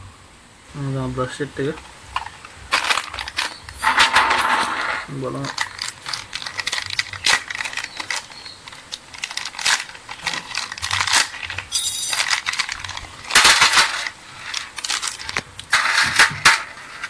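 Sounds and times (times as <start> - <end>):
plastic wrapper crinkling: 1.6 - 17.0
small metal parts clinking in tray: 2.2 - 17.0.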